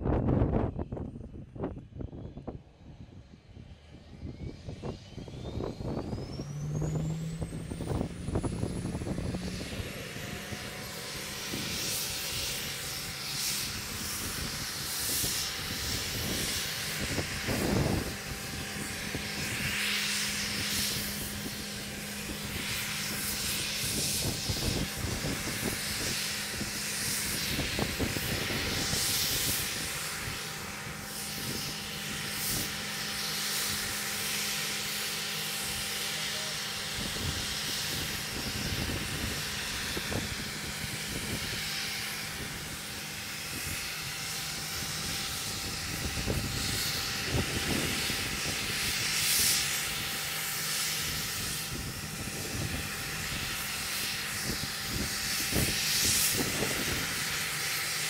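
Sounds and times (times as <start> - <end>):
wind gusting on microphone: 0.0 - 36.0, 36.6 - 58.0
mechanical hum with hiss: 2.3 - 58.0.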